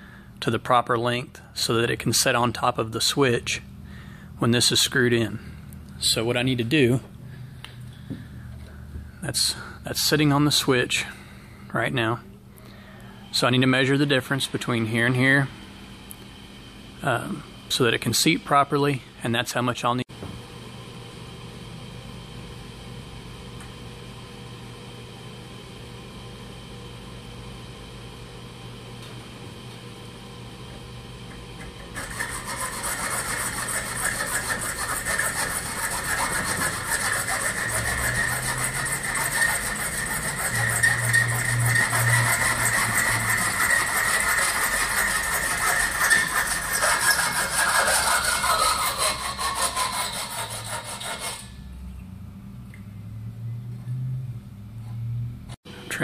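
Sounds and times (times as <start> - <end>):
hacksaw cutting metal: 31.9 - 51.6.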